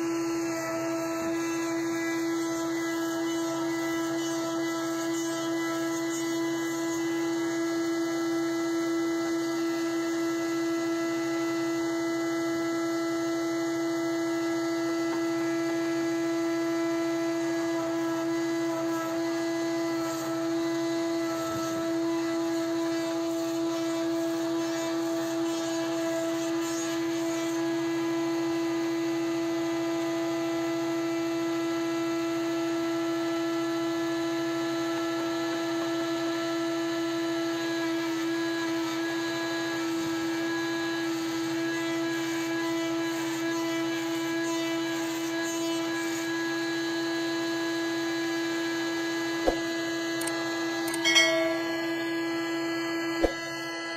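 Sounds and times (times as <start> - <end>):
sawmill humming: 0.0 - 11.3, 12.0 - 28.2, 47.9 - 53.9
band blade cutting log: 49.4 - 51.9, 53.2 - 53.5.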